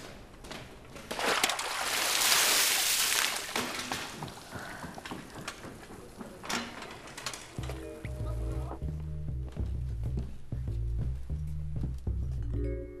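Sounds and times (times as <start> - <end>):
water splashing down: 1.2 - 4.2.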